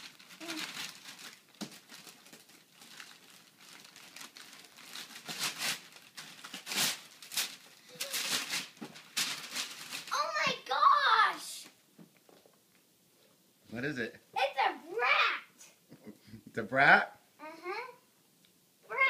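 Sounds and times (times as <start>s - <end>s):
wrapping paper tearing and crinkling: 0.0s - 10.8s.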